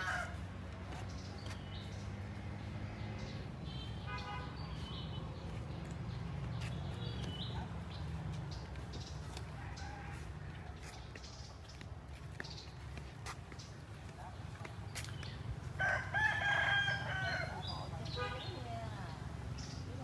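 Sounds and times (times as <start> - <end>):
rooster crowing: 0.0 - 0.4, 9.5 - 10.7, 15.8 - 17.6
small birds chirping: 0.0 - 20.0.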